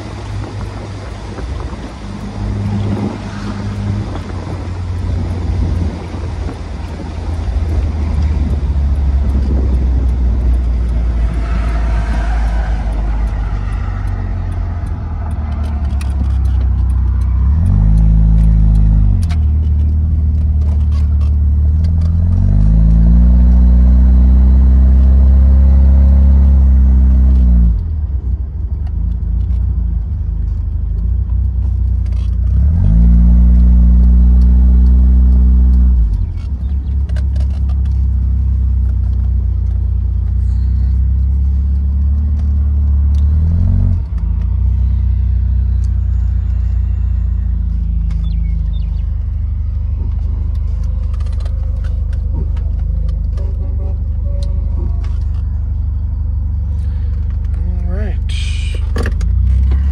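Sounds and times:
car engine revving under load: 0.0s - 59.9s.

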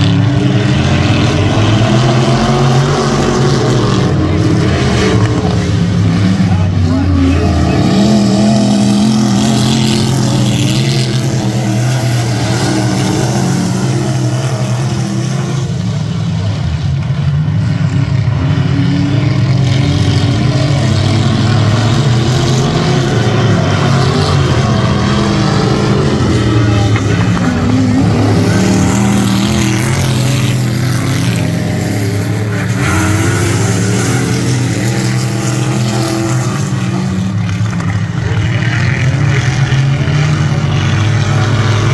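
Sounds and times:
race car engines: 0.0s - 41.9s.

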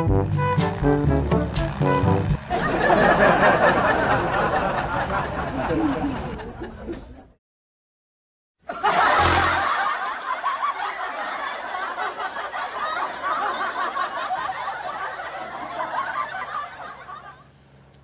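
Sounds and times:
snickering and chuckling: 8.8s - 17.4s.

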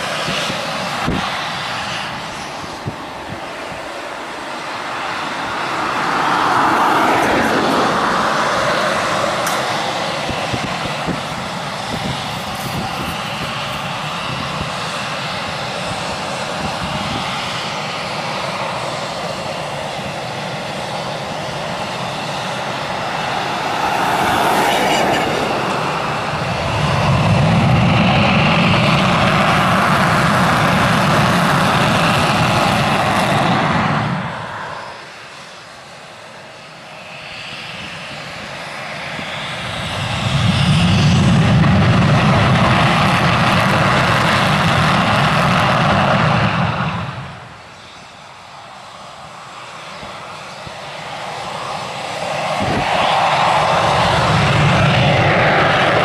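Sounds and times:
jet engine roar with whine: 0.0s - 56.0s
deep rumble: 22.6s - 34.5s.

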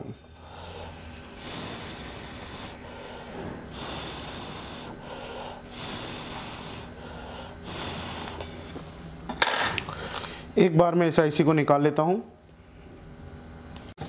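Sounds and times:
slow breathing close to microphone: 0.3s - 8.8s.

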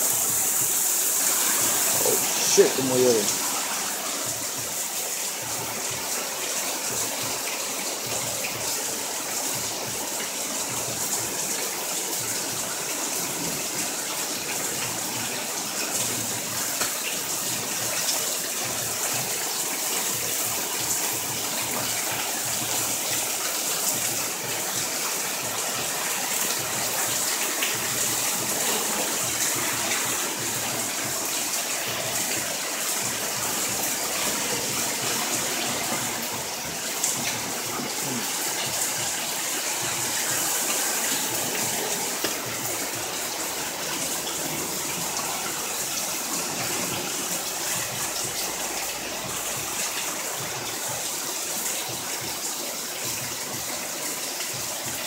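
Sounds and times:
heavy rain on pavement: 0.0s - 55.0s.

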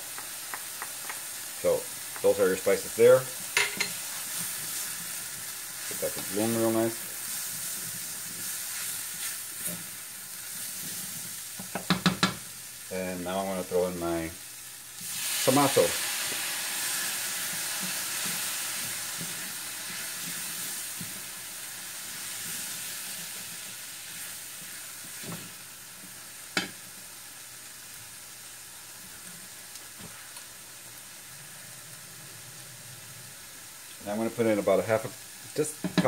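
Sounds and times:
tomatoes sizzling in a pan: 0.0s - 36.0s
wooden spoon stirring and knocking: 10.8s - 12.4s.

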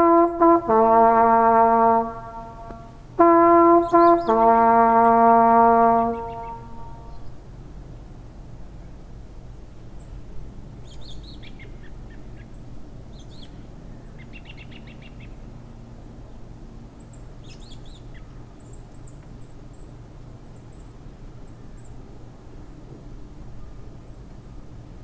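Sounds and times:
small birds chirping: 3.8s - 5.2s, 6.0s - 7.3s.

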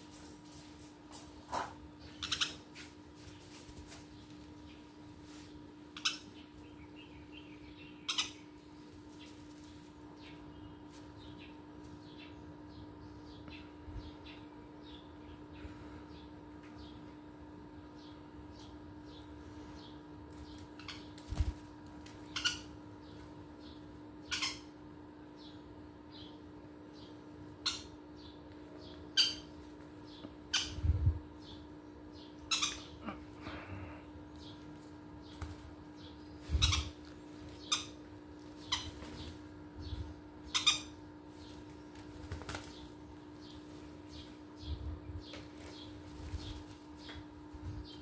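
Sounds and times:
birds fluttering: 0.0s - 12.0s, 19.1s - 24.6s, 32.5s - 48.0s.

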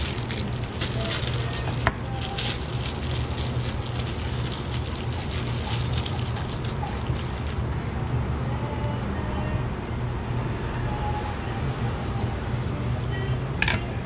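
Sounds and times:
kitchen equipment humming: 0.0s - 7.7s.

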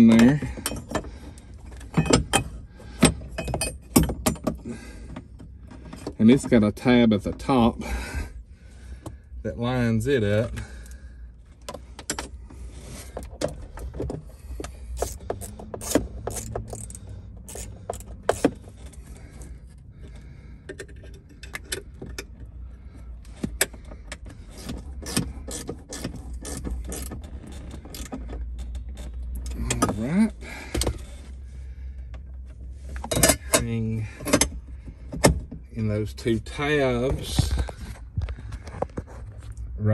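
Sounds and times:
metal clicks and knocks: 1.7s - 6.6s, 33.0s - 35.6s.

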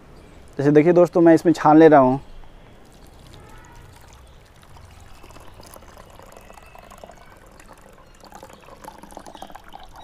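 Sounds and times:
liquid trickling through strainer: 2.8s - 10.0s.

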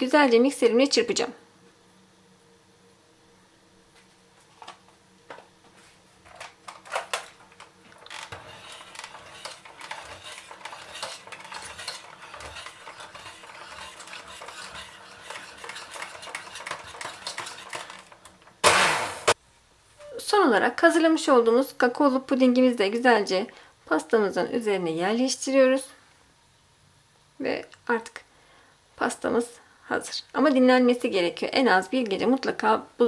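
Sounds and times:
beaters rattling and scraping pot: 6.3s - 18.6s
electric hand mixer whisking: 8.0s - 19.4s.

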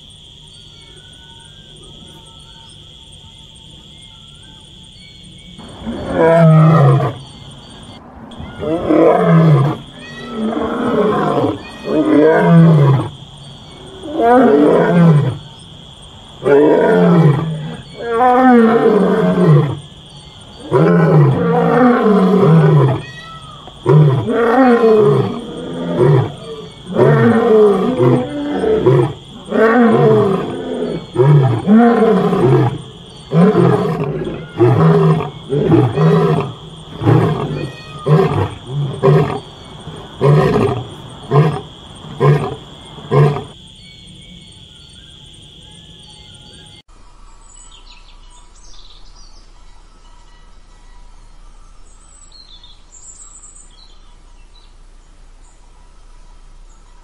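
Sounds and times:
lion roaring: 5.6s - 7.2s, 8.6s - 13.1s, 13.9s - 15.4s, 16.4s - 19.8s, 20.6s - 23.0s, 23.8s - 43.6s
lion grunting: 23.8s - 43.6s.

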